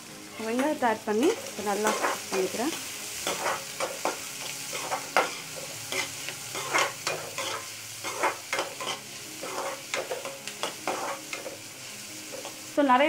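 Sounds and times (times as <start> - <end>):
onions sizzling in oil: 0.0 - 13.0
metal spatula scraping pan: 3.2 - 11.6.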